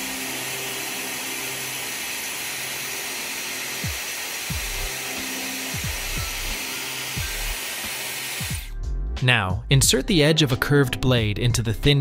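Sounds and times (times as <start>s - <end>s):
hair dryer blowing: 0.0s - 8.7s
background music: 0.0s - 12.0s
deep kick drum beat: 5.8s - 6.5s.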